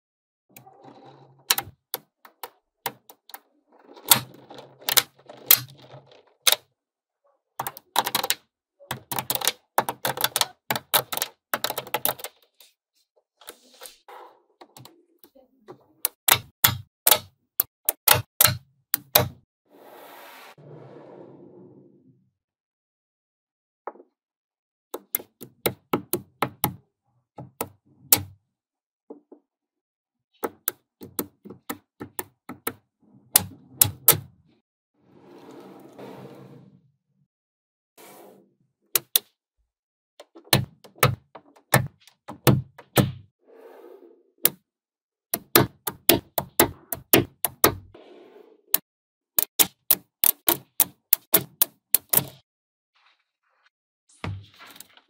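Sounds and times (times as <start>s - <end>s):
magnetic balls clicking together: 7.6s - 12.4s, 16.1s - 19.3s, 49.4s - 52.4s.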